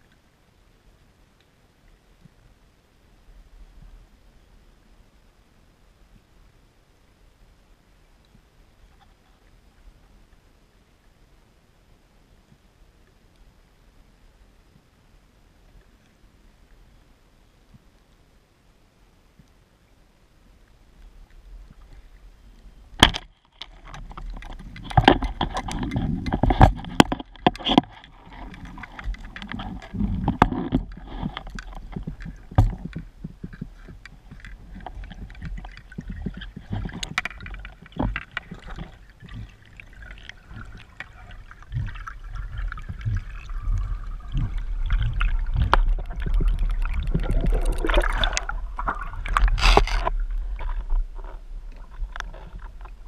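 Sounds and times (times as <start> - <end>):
water gurgling underwater: 24.1 - 53.0
low rumble: 40.4 - 53.0.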